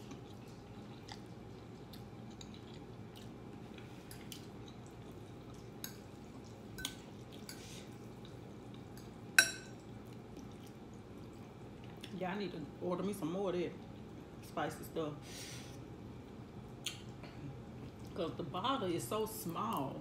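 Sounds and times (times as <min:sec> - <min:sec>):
chewing noodles: 0:00.0 - 0:09.2, 0:09.8 - 0:12.2.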